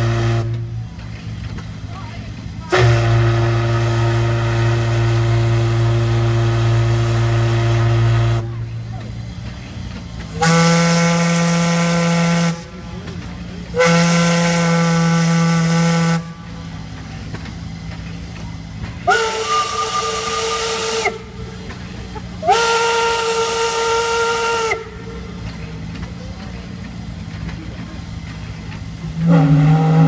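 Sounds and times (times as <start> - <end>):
steam whistle blasts: 0.0 - 0.7, 2.7 - 8.5, 10.4 - 12.7, 13.7 - 16.6, 19.0 - 21.4, 22.4 - 25.2, 29.1 - 30.0
steam hissing: 0.0 - 30.0.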